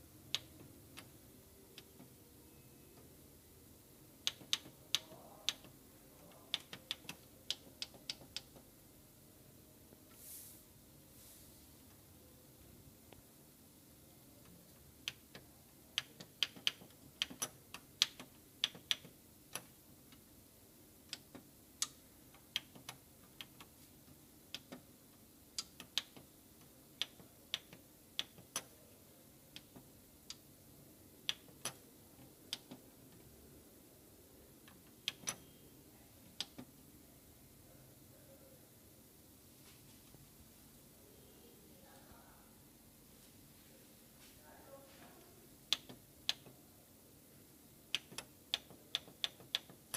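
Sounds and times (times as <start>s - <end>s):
plastic buttons clicking: 34.7s - 35.5s.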